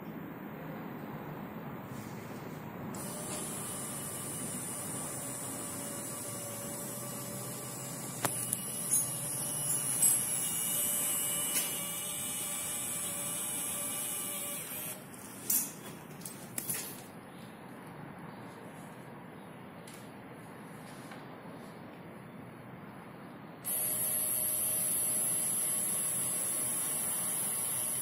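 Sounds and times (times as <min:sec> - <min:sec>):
electric machine hum: 0:02.9 - 0:15.1, 0:23.6 - 0:28.0.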